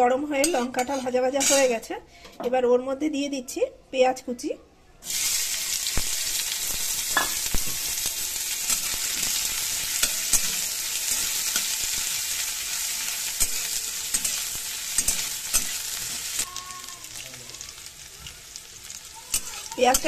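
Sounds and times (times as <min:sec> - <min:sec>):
metal spatula scraping pan: 0:00.4 - 0:01.8, 0:06.4 - 0:16.5
onions sizzling in oil: 0:05.0 - 0:20.0.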